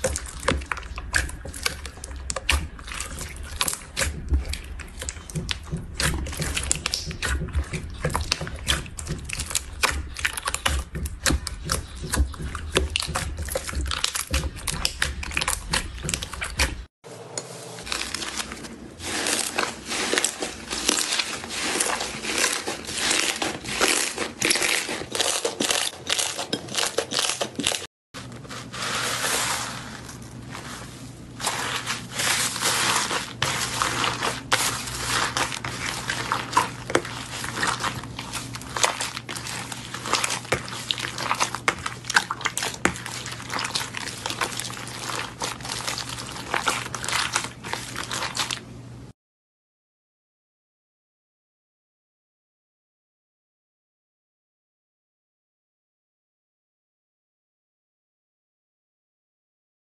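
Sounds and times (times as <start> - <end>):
hands squishing slime: 0.0 - 16.9, 17.8 - 48.7.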